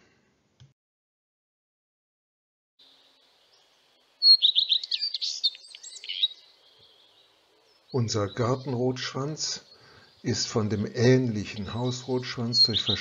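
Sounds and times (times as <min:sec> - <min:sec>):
bird singing: 0:02.8 - 0:13.0.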